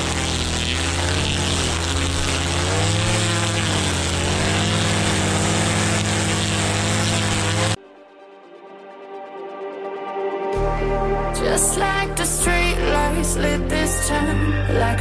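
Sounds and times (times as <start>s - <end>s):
lawn trimmer motor running: 0.0s - 7.8s.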